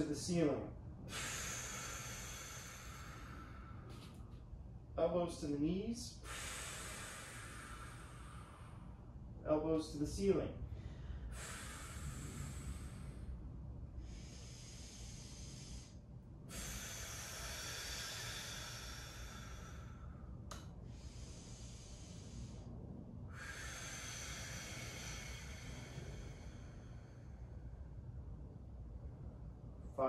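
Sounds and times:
man breathing slowly: 0.8s - 4.9s, 6.1s - 9.4s, 10.3s - 30.0s.

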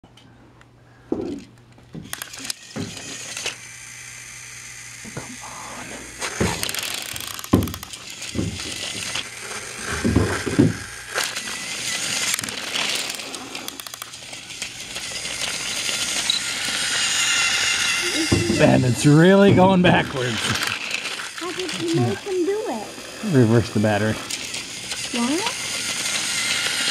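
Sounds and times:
toy train motor whirring: 1.5s - 26.9s
plastic wheels clattering: 12.2s - 22.6s.

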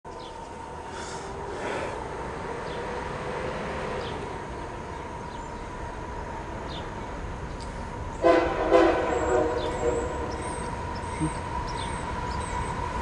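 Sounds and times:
outdoor background rumble: 0.1s - 13.0s
small birds chirping: 9.6s - 12.8s.

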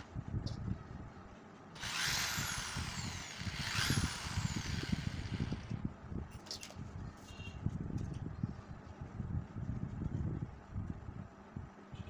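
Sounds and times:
electric drill whine: 1.8s - 5.8s.

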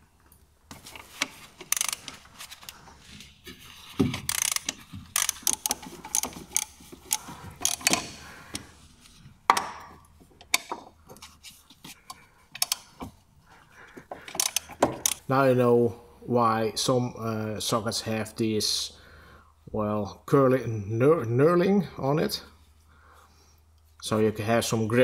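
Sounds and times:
socket ratchet clicking: 1.6s - 2.2s, 4.2s - 8.6s, 12.6s - 12.9s, 14.3s - 15.2s.

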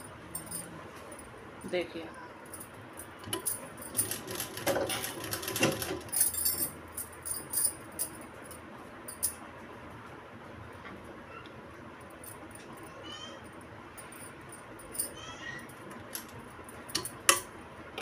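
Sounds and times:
glass bangles clinking: 0.0s - 1.3s, 6.1s - 9.4s, 14.0s - 17.5s
sewing machine stitching: 4.0s - 6.1s.

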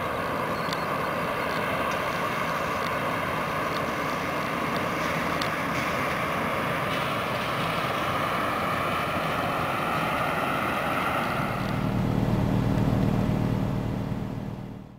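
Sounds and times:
car engine idling: 10.8s - 14.9s.

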